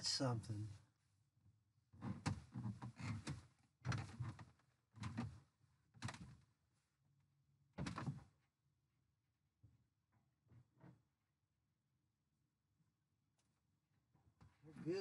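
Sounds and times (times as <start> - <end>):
bumps and knocks in a boat: 2.0 - 6.4.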